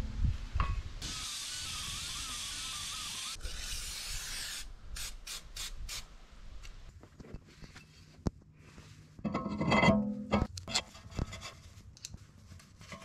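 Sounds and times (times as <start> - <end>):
aerosol can spraying hiss: 1.0 - 6.1.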